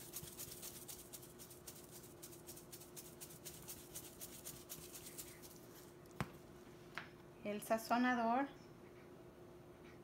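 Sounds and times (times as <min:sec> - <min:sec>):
salt shaker rattling: 0:00.0 - 0:06.0.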